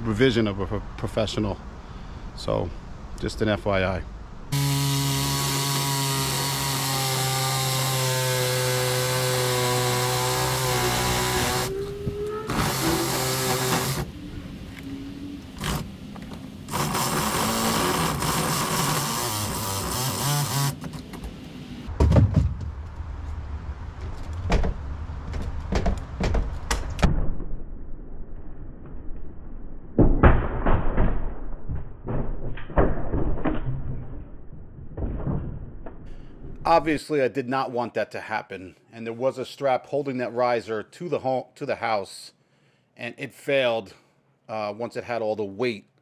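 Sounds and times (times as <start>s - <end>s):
small power tool motor: 4.5s - 14.1s, 16.7s - 20.8s
heavy thud: 21.9s - 23.0s.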